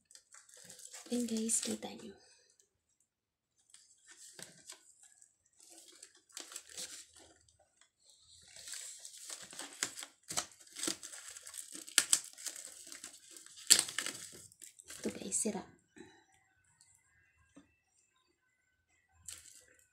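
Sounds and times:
plastic film crinkling: 0.0s - 2.1s, 3.6s - 15.4s, 19.3s - 19.8s.

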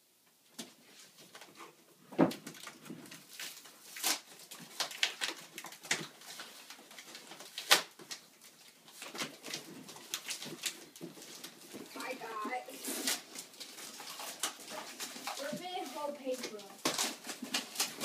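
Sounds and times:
packing tape ripping: 2.3s - 8.3s, 12.7s - 18.0s.

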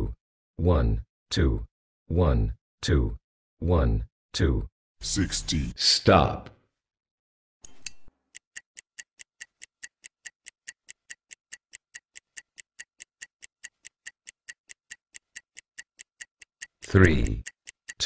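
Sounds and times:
stopwatch ticking: 8.2s - 18.0s.

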